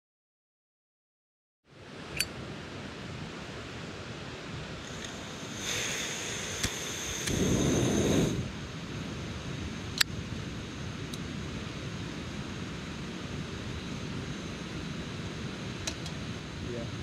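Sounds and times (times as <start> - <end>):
flowing water: 2.8 - 8.8
low rush of flame: 2.8 - 17.0
lighter clicks: 4.8 - 8.4
gas hissing with high whistle: 4.8 - 8.8.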